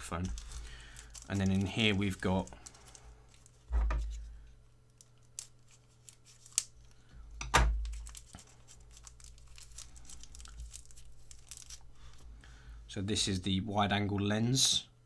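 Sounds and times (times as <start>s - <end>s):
plastic packet crinkling: 0.0s - 4.3s, 4.9s - 7.0s, 7.8s - 12.2s.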